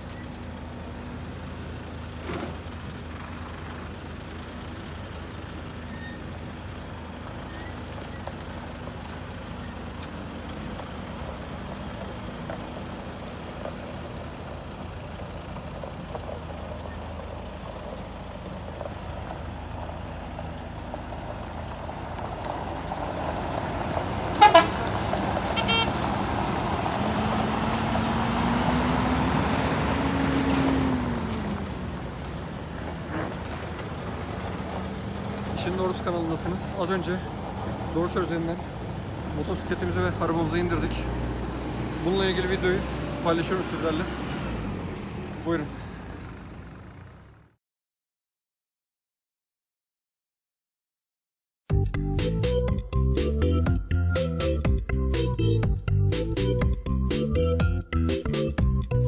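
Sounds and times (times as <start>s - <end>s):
truck diesel engine: 0.0s - 47.6s, 51.7s - 59.0s
truck horn toot: 24.3s - 26.2s.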